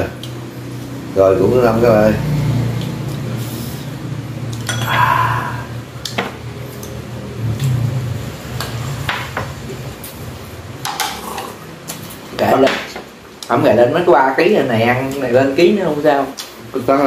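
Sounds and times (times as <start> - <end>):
steady low hum: 0.0 - 12.4
dishes and chopsticks clinking: 4.6 - 5.2.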